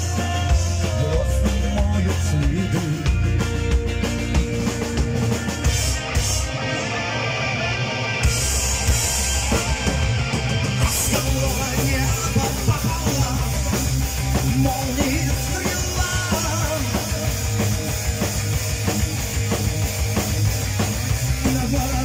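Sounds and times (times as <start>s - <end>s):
man singing: 0.0s - 3.5s, 10.8s - 17.7s, 21.4s - 22.0s
drum kit beat: 0.0s - 22.0s
electric guitars: 0.0s - 22.0s.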